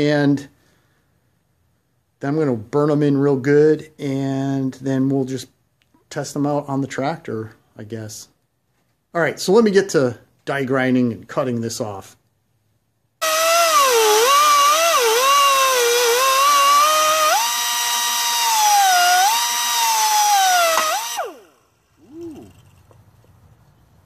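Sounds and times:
die grinder cutting metal: 13.2s - 22.0s.

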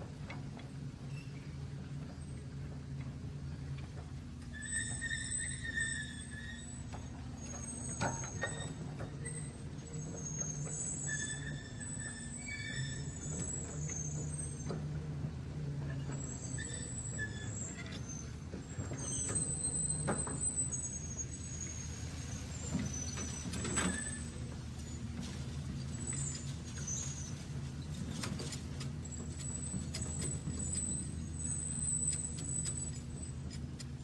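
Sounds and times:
toy motor and gears whirring: 28.2s - 34.0s.

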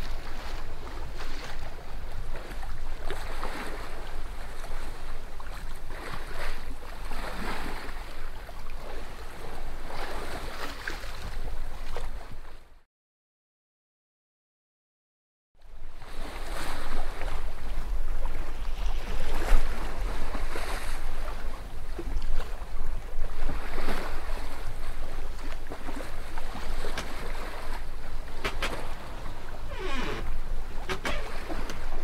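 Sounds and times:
water splashing against hull: 0.0s - 12.8s, 15.7s - 32.0s
wind on microphone: 15.9s - 32.0s.

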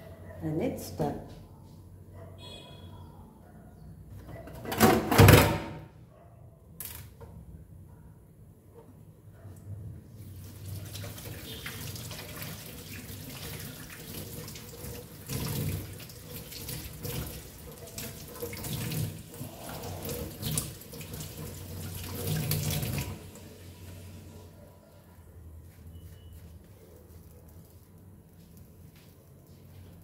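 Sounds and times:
water running from a tap: 10.4s - 24.2s.

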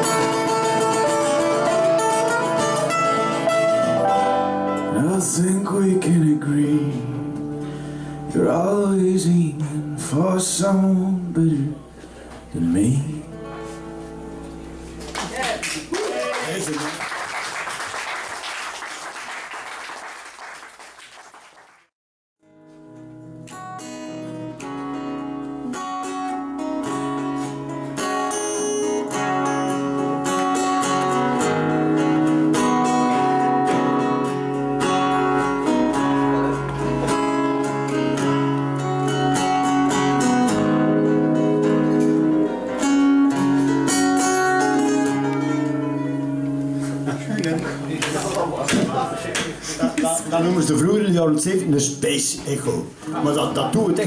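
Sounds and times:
acoustic guitars playing: 0.0s - 16.0s, 22.4s - 54.0s
crowd noise: 11.7s - 12.6s, 32.3s - 40.7s, 45.1s - 51.7s.

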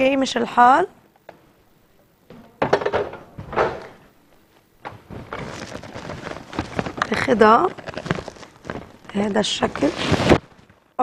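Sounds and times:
kitchen items clattering: 2.4s - 4.0s, 4.8s - 10.4s
soft crackling patter: 4.3s - 11.0s.

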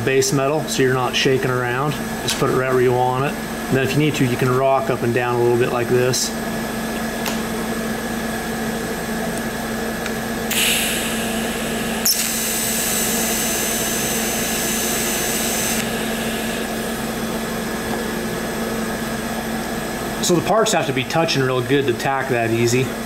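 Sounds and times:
steady hum: 0.0s - 23.0s
welding arc buzz: 7.5s - 17.9s
welding arc click: 9.4s - 11.2s, 12.0s - 16.8s
welder gas hiss: 10.5s - 17.0s.

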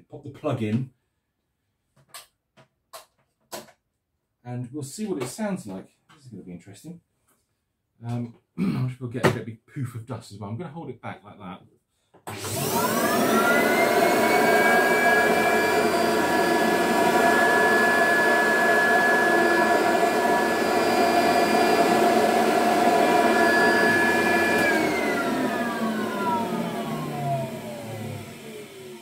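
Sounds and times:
vacuum cleaner motor whine: 12.3s - 29.0s.

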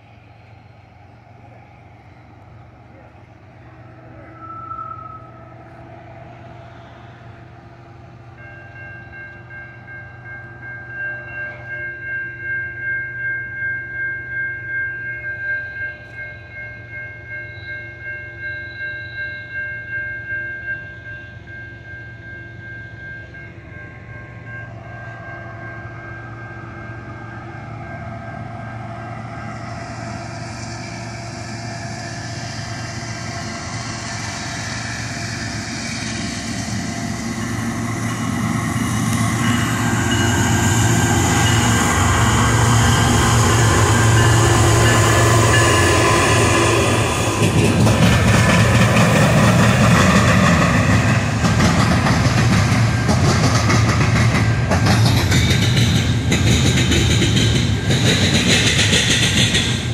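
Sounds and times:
freight train rumble: 0.0s - 59.9s
crossing warning bell ringing: 7.2s - 59.9s.

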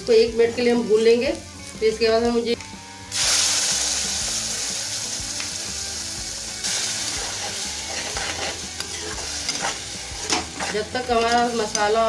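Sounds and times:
paste sizzling in hot oil: 3.0s - 12.0s.

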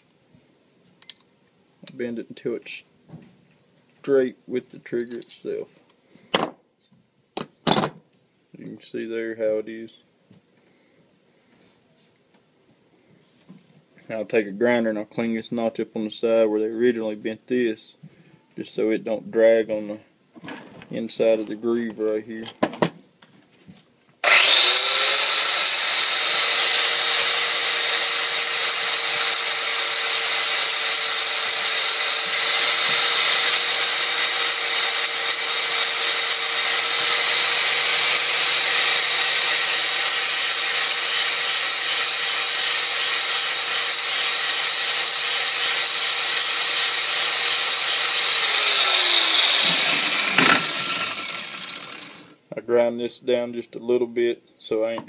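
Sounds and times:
metal ground against grinding wheel: 24.2s - 52.3s
angle grinder running: 24.2s - 52.4s.

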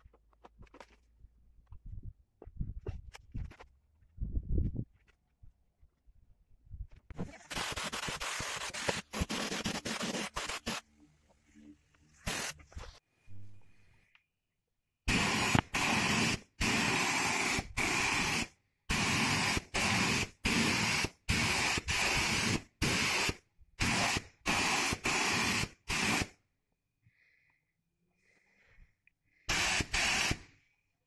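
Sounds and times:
spray paint can hissing: 7.3s - 10.8s, 12.2s - 12.6s, 15.1s - 26.3s, 29.5s - 30.5s.

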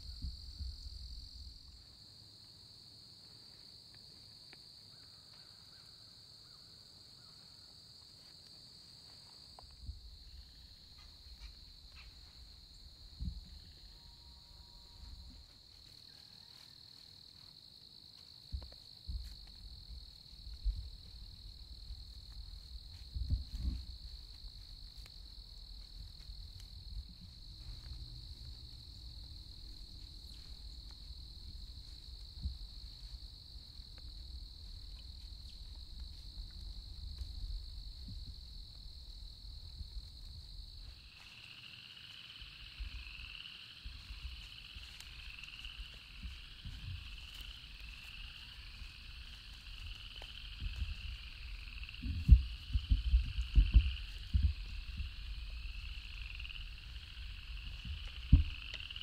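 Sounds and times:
wavering pulsing insect call: 0.0s - 2.3s, 3.2s - 59.0s
high-pitched insect drone: 40.6s - 59.0s.

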